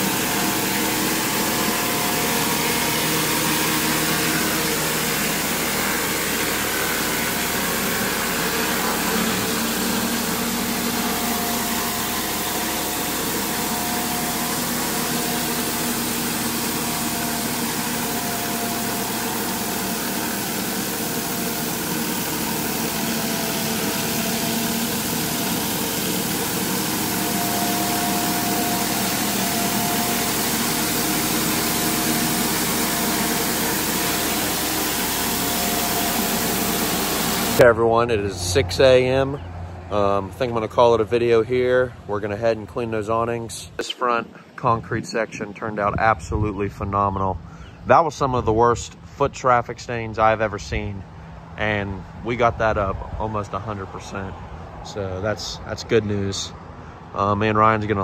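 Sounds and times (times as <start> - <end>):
high-pressure water spraying concrete: 0.0 - 37.6
pressure washer engine running: 0.0 - 41.2.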